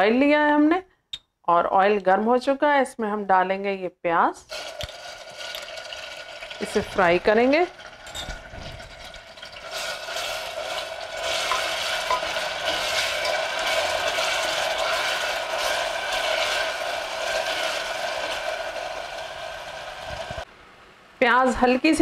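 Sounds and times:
onion paste sizzling in hot oil: 4.5 - 20.5.

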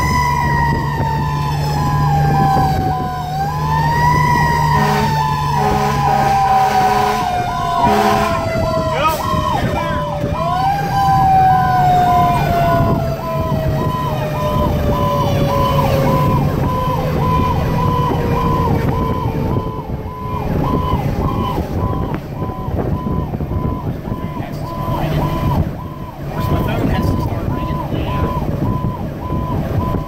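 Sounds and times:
fire engine running: 0.0 - 30.0
siren falling in pitch: 0.0 - 30.0
pulsing electronic warning tone: 4.1 - 10.1, 12.1 - 30.0.

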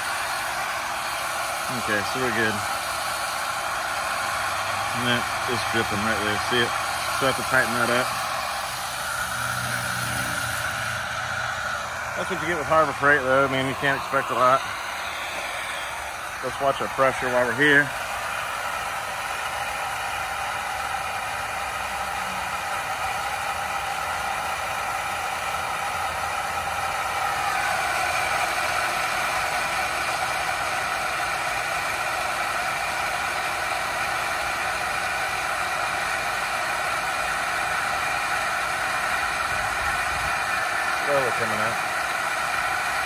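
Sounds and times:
water pump motor whirring: 0.0 - 43.0.

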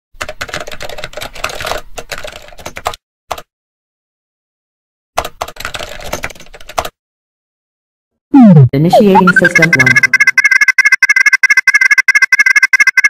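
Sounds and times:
rapid typing on keyboard: 0.2 - 3.5, 5.2 - 7.0, 9.2 - 13.0.

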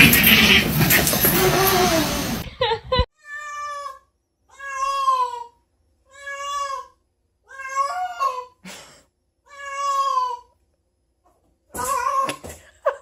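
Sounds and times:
cat meowing: 3.2 - 8.6, 9.5 - 10.5.

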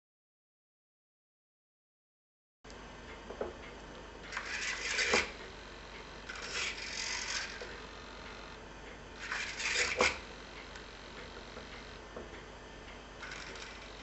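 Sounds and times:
servo whirring: 4.2 - 8.6, 9.2 - 12.0, 13.2 - 14.0.

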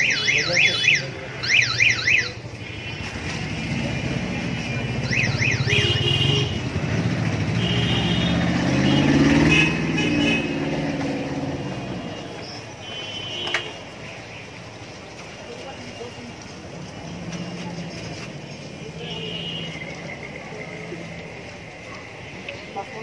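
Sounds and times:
vehicle engine passing: 6.1 - 12.4, 16.3 - 22.4.

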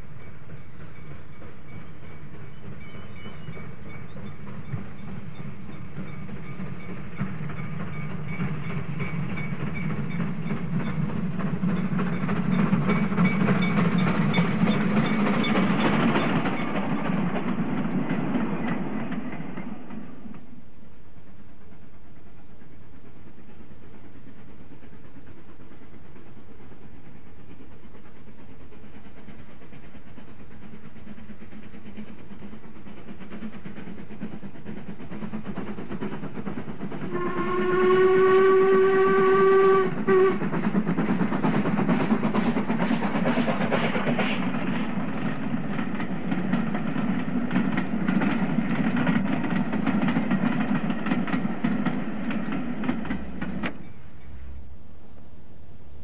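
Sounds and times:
rhythmic train beat: 0.0 - 54.7
steam train rumbling: 0.0 - 56.0
steam whistle: 37.1 - 40.5.

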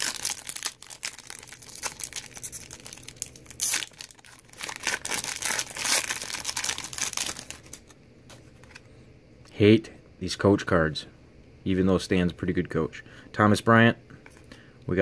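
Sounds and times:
foil wrapper crinkling and tearing: 0.0 - 7.9.

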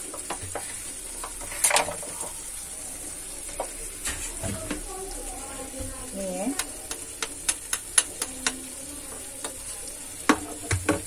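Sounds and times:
chicken sizzling in pan: 0.0 - 11.0
steel spoon scraping pan: 0.2 - 2.3
spoon knocking: 6.5 - 11.0.

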